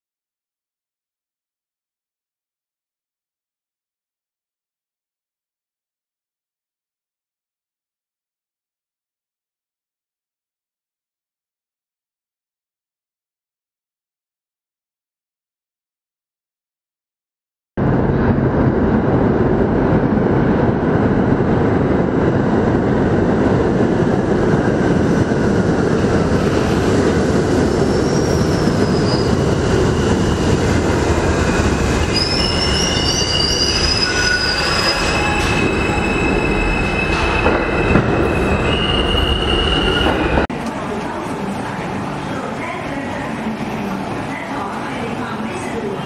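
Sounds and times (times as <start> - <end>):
train wheels rumbling on rail: 17.8 - 46.0
train brakes squealing: 27.6 - 30.6, 32.0 - 40.4.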